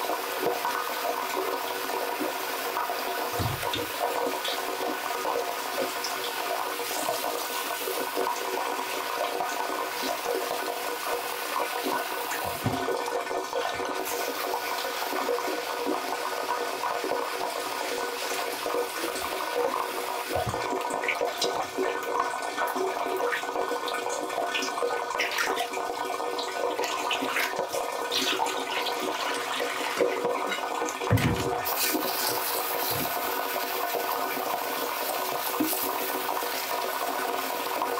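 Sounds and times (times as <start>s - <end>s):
tap running into metal sink: 3.2s - 4.6s, 11.6s - 14.2s, 18.6s - 22.3s, 30.5s - 33.9s
small splashes and knocks: 3.3s - 4.0s, 12.3s - 13.9s, 31.1s - 31.8s, 32.8s - 33.2s.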